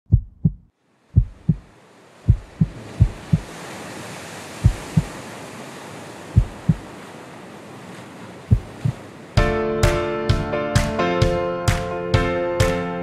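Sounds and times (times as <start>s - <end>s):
heartbeat thumps: 0.1s - 1.7s, 2.3s - 3.5s, 4.6s - 5.1s, 6.4s - 6.8s, 8.5s - 9.0s
sea surf: 0.8s - 13.0s.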